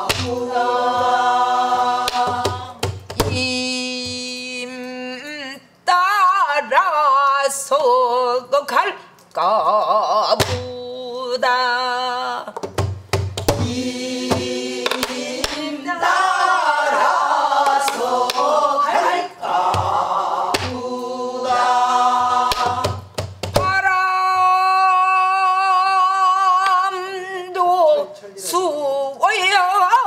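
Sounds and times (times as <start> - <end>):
several voices singing together: 0.0 - 3.6, 13.5 - 23.1
woman singing: 2.2 - 12.6, 23.6 - 30.0.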